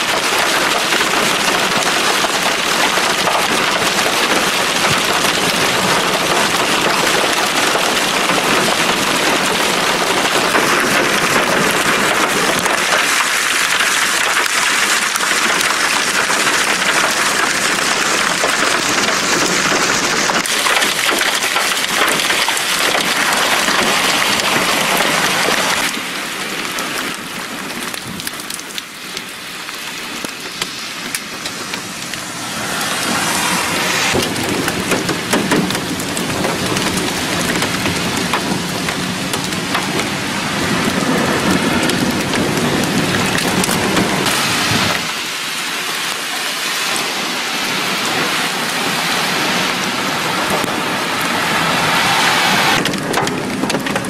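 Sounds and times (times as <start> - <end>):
hail and heavy rain pelting: 0.0 - 54.0.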